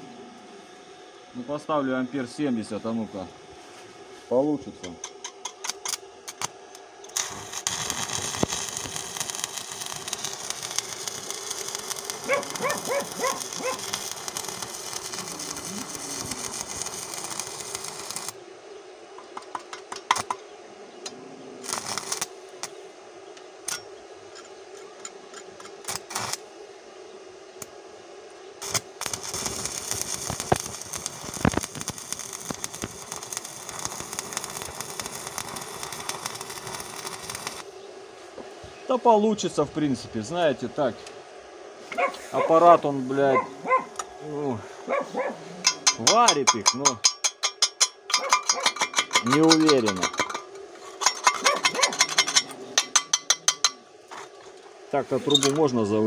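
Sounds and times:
welding arc crackling hiss: 4.1 - 18.4, 19.1 - 20.5, 21.6 - 23.0, 23.6 - 26.7, 27.5 - 56.0
man speaking: 38.9 - 41.1, 42.3 - 43.6, 44.2 - 44.7, 46.0 - 47.0, 49.2 - 50.1, 54.9 - 56.0.

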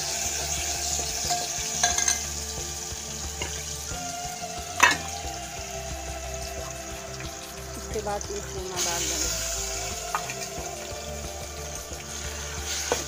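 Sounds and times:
paste sizzling in hot oil: 0.0 - 13.0
spoon clinking against pot: 1.3 - 2.3.

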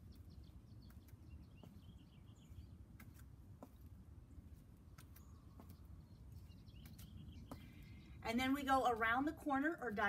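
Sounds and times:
faint bird chirps: 4.9 - 8.3.

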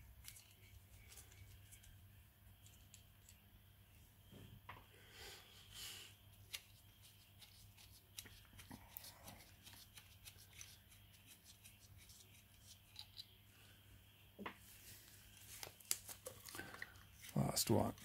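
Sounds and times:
gloved hands clicking and rubbing: 6.5 - 13.3.

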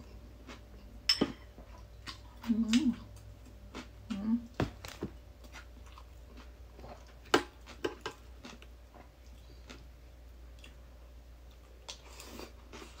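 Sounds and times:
person chewing crunchy food: 0.0 - 1.0, 4.8 - 10.8, 11.4 - 13.0.

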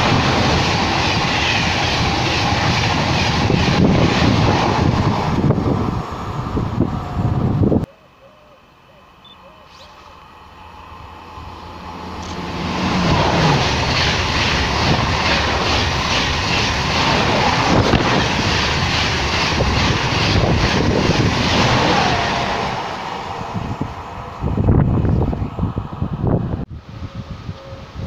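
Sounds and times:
high-speed train rushing past: 0.0 - 7.9, 9.7 - 28.0.

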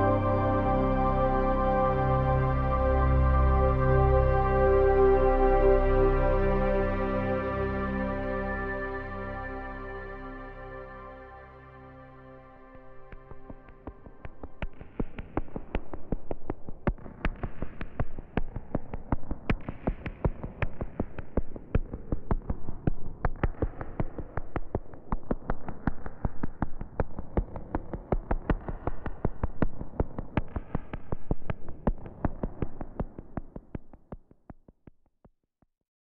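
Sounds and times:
soft synth pad: 0.0 - 16.0
rapid electronic clicks and ticks: 13.0 - 35.4.

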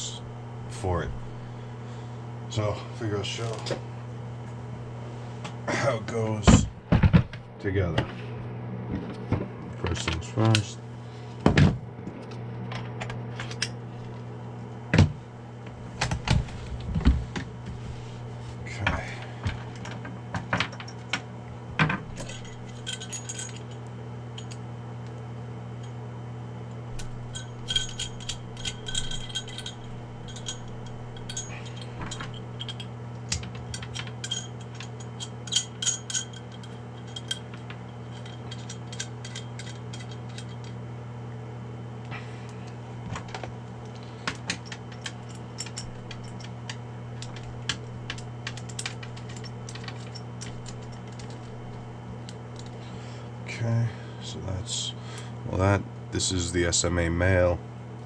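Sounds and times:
steady low hum: 0.0 - 58.0
metal connectors clinking: 21.8 - 23.8, 26.9 - 40.8, 43.1 - 52.8.

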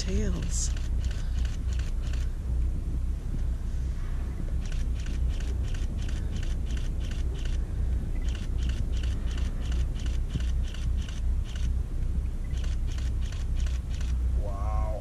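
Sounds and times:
fast even ticking: 0.0 - 2.3, 4.6 - 11.8
boat engine rumbling: 0.0 - 15.0.

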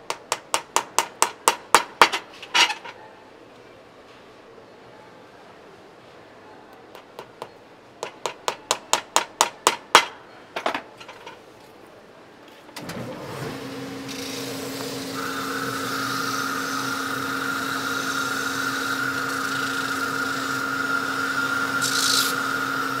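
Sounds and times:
machine motor hum and whine: 13.0 - 23.0.

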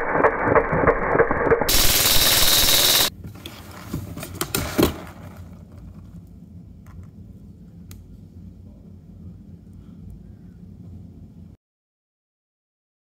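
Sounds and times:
airsoft gun full-auto burst: 0.0 - 3.1.

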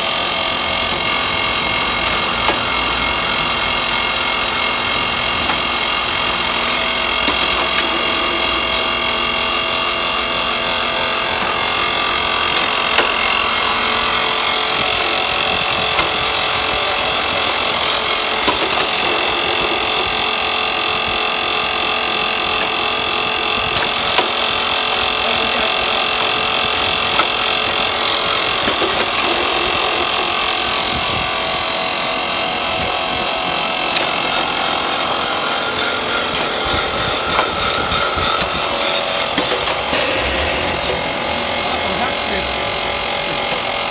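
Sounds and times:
packing machine whirring: 0.0 - 43.9
machine clicks: 5.4 - 9.0, 17.4 - 20.2, 27.0 - 30.3, 33.9 - 41.2.

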